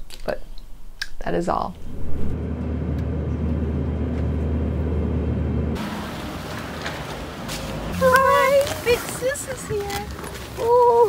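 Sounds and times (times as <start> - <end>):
airliner cabin drone: 1.8 - 6.0
street noise hiss: 5.8 - 11.0.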